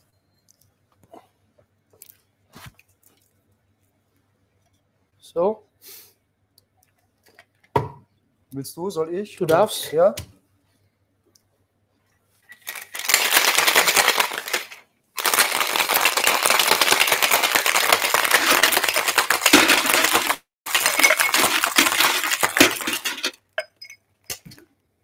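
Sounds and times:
ice rattling in metal shaker: 12.5 - 23.8.

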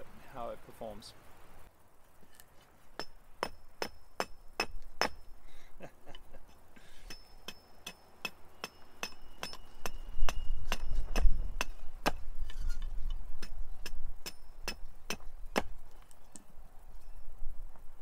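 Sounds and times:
axe chopping wood: 7.5 - 12.6, 13.4 - 15.8.

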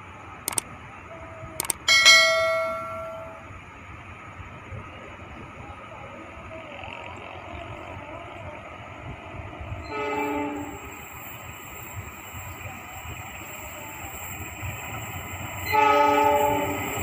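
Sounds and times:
train horn blast: 9.8 - 10.9, 15.6 - 17.0.

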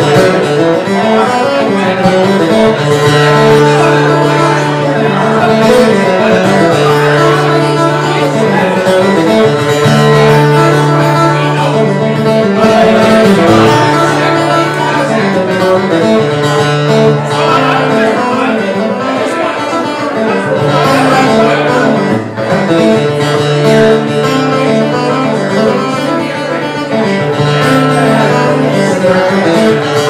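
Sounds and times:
acoustic guitar: 0.0 - 30.0.

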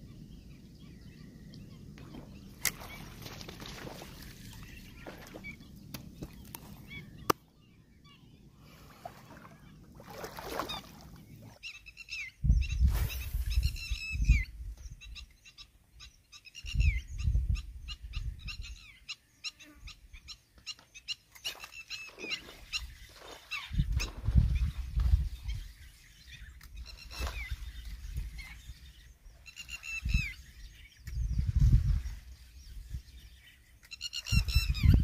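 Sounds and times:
wind buffeting microphone: 12.4 - 15.3, 16.6 - 18.9, 22.6 - 33.5, 34.2 - 35.0.

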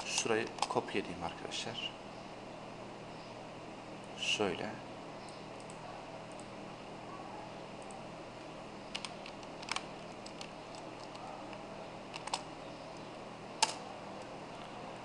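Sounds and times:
keyboard keystrokes: 8.9 - 13.8.

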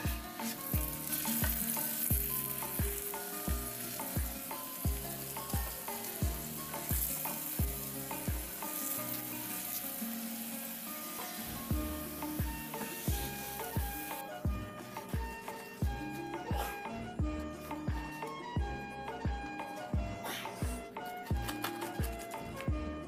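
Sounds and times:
background music with drum beat: 0.0 - 9.8, 11.1 - 23.0
flatbread sizzling in oil: 0.0 - 16.0.

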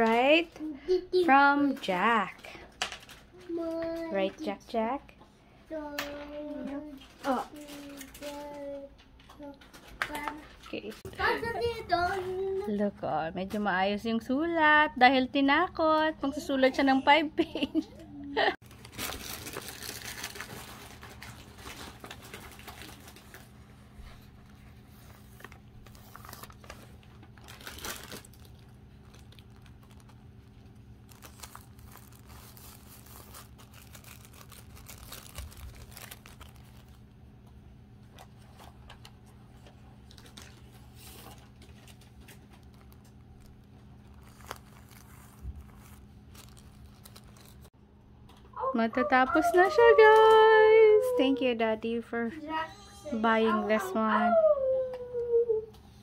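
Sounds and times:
plastic bags crinkling: 7.0 - 8.8, 18.6 - 37.2, 40.0 - 47.7.

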